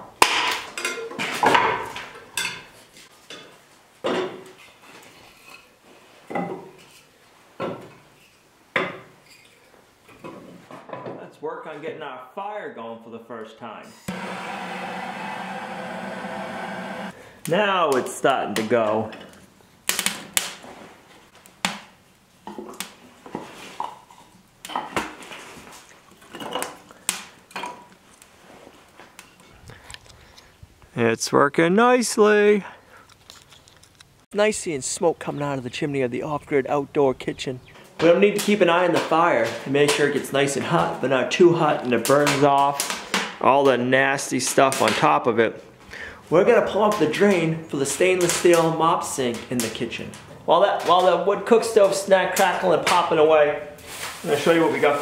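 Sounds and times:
sharp pops from fire: 19.8 - 20.6.

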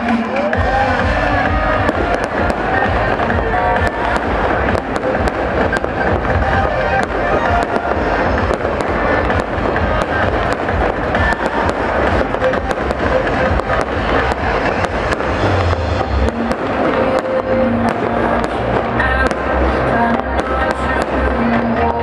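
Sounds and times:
fireworks bangs and crackles: 0.0 - 22.0
music playing: 0.0 - 22.0.

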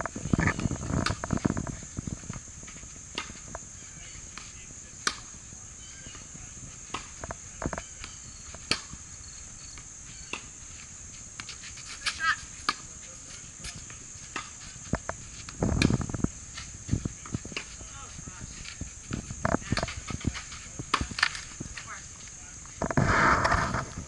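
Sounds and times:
insects chirring: 0.0 - 24.0.

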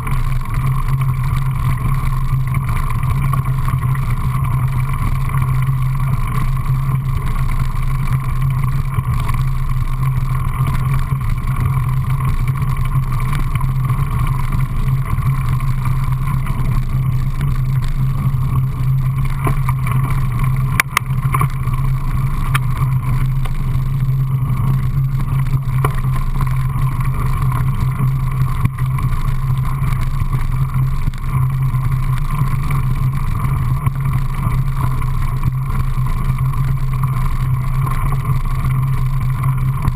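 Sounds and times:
bike clicks and rattles: 0.0 - 39.9
bike rolling over gravel trail: 0.0 - 39.9.

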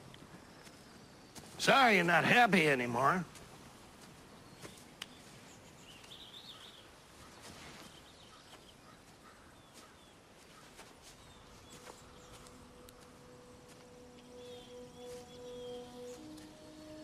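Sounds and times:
faint bird chirps: 4.3 - 17.0
low background music tone: 11.0 - 17.0.

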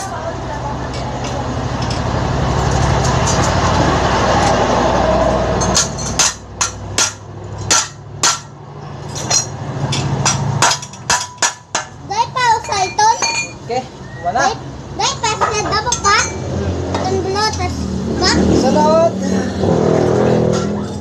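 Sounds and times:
metal pipe hammering metal frame: 5.6 - 12.0.

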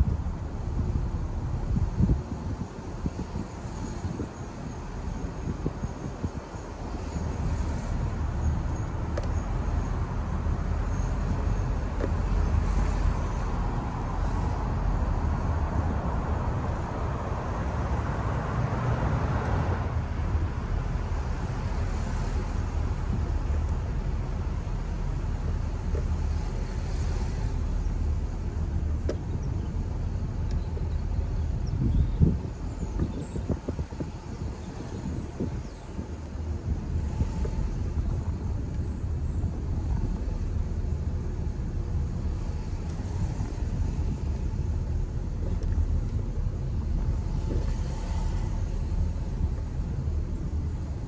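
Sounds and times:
road and engine rumble: 0.0 - 51.0
broad hiss: 10.6 - 18.4, 21.2 - 29.4, 32.3 - 38.4, 42.0 - 45.3, 47.1 - 51.0.

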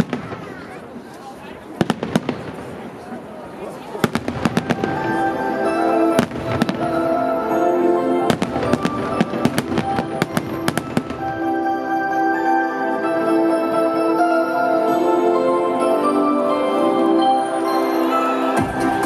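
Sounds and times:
fireworks bangs: 0.0 - 1.0, 1.7 - 3.3, 3.9 - 7.3, 8.3 - 11.6
festive music: 4.0 - 19.0.

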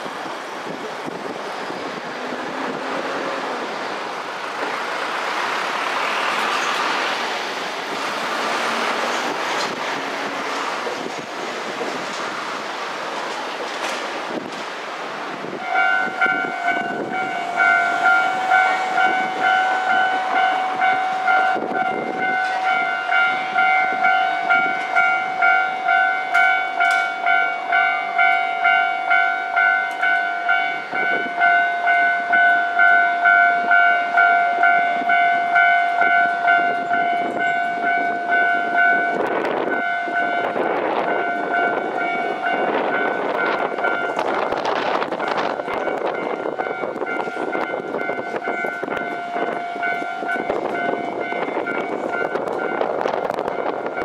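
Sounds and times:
train rumbling over tracks: 0.0 - 54.0
level crossing warning bell ringing: 15.6 - 54.0.

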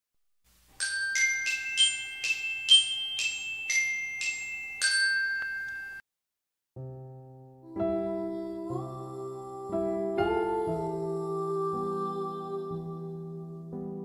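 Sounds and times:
glockenspiel-like jingle: 0.8 - 6.0.

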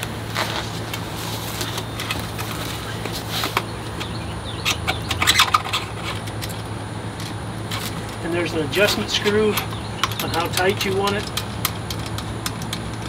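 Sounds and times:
foam sheet rustling: 0.0 - 3.6
steady low hum: 0.0 - 13.0.

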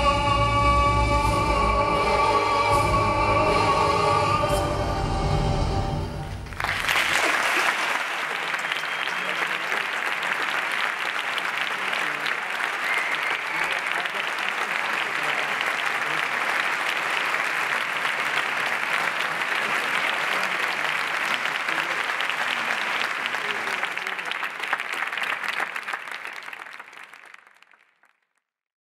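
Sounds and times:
audience applauding: 6.3 - 28.2.

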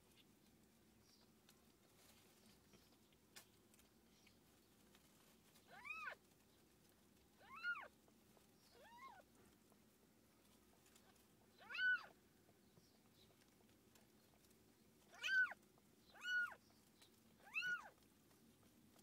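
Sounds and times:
cat mewing: 5.7 - 6.2, 7.4 - 7.9, 11.6 - 12.2, 15.1 - 15.6, 16.2 - 16.6, 17.4 - 18.0.

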